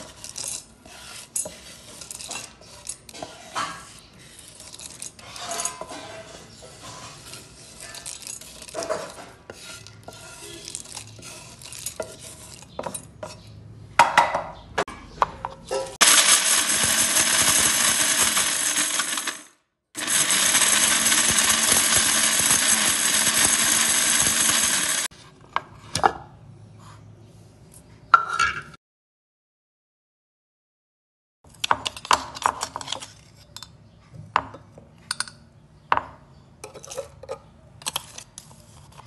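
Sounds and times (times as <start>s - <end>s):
wooden spatula scraping pan: 0.0s - 13.5s
mixer grinder grinding spices: 16.0s - 25.1s.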